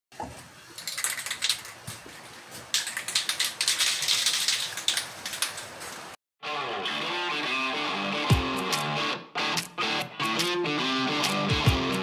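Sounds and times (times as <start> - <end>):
spray can rattling: 0.8 - 1.9, 2.7 - 6.1.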